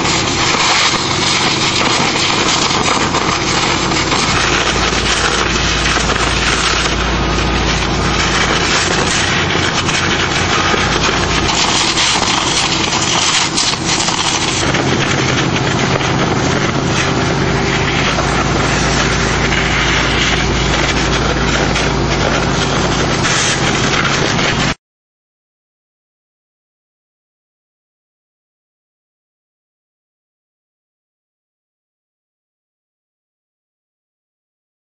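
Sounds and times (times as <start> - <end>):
high-pressure water jet hiss: 0.0 - 24.8
pump engine drone: 0.0 - 24.8.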